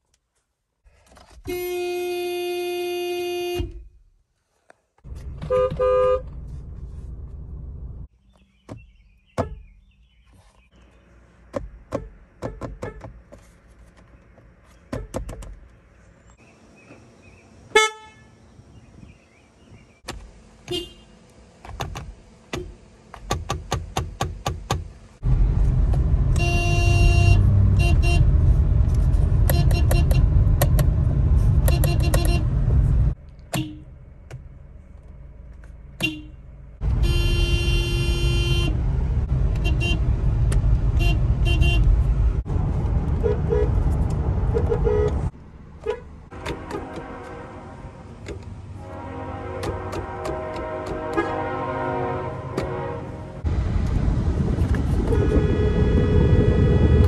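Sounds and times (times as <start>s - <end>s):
long car horn blast: 1.4s - 3.7s, 5.5s - 6.3s, 17.7s - 18.4s, 26.3s - 28.3s, 36.0s - 38.8s, 39.6s - 40.0s, 41.0s - 41.9s, 44.5s - 45.2s, 45.8s - 53.4s, 55.1s - 56.6s
car horns honking: 1.4s - 3.8s, 5.2s - 6.4s, 17.7s - 18.5s, 20.6s - 21.2s, 26.2s - 28.4s, 29.4s - 30.4s, 31.6s - 32.6s, 33.4s - 34.0s, 36.0s - 38.9s, 39.5s - 40.1s, 40.9s - 42.0s, 43.2s - 43.8s, 44.4s - 53.4s, 55.0s - 56.6s
quick horn toots: 5.5s - 6.3s, 26.3s - 28.3s, 36.0s - 38.8s, 44.5s - 48.1s, 48.8s - 53.4s, 55.0s - 56.6s
low rumble: 25.2s - 29.5s, 52.7s - 57.0s.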